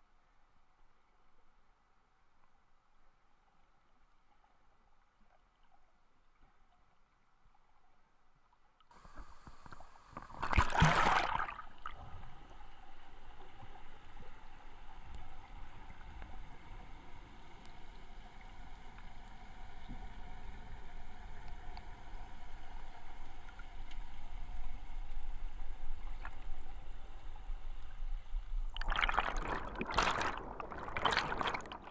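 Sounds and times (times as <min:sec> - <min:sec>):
water rushing underwater: 0:09.0 - 0:17.4, 0:28.6 - 0:31.9.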